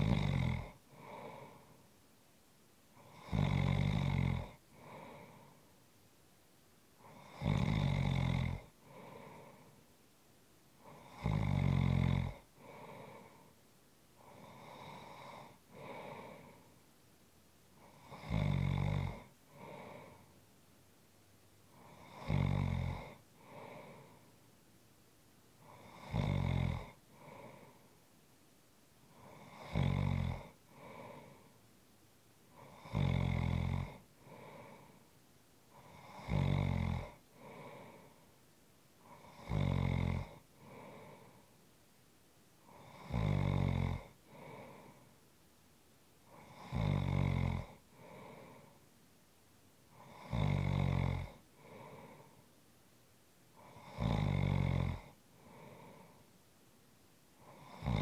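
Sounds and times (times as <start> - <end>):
person snoring: 0.0 - 1.8, 3.0 - 5.6, 7.0 - 9.8, 10.8 - 13.5, 14.2 - 16.7, 17.8 - 20.3, 21.7 - 24.3, 25.6 - 27.9, 29.1 - 31.6, 32.5 - 35.0, 35.7 - 38.2, 39.0 - 41.5, 42.6 - 45.1, 46.3 - 48.8, 49.9 - 52.4, 53.6 - 56.2, 57.4 - 58.0
soft breaths: 0.0 - 58.0.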